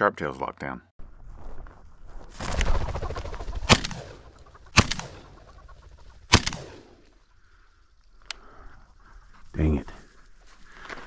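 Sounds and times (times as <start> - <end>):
whirring wingbeats: 2.4 - 6.7
grouse clucking calls: 2.5 - 10.3
shotgun shots: 3.6 - 5.4, 6.3 - 7.0.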